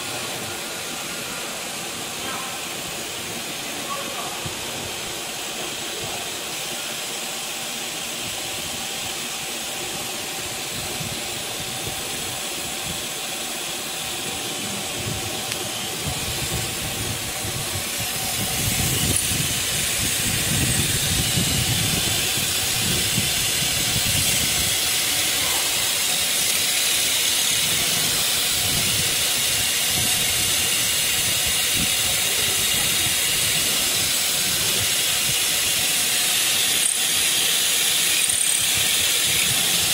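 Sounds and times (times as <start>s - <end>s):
router spindle whine: 4.7s - 39.9s.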